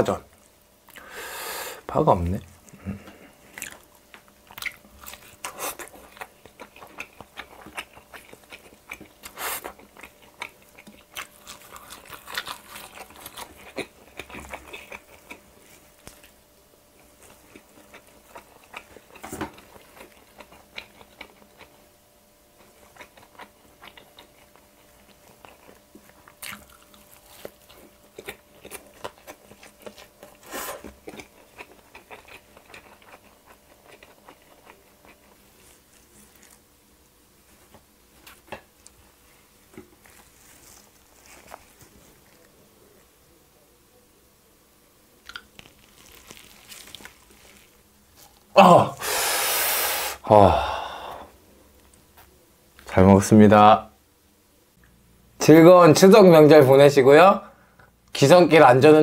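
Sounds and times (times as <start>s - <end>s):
wet chewing: 3.5s - 16.4s, 17.0s - 21.8s, 22.6s - 36.6s, 45.2s - 48.5s
crisp crunching bites: 45.3s - 48.4s.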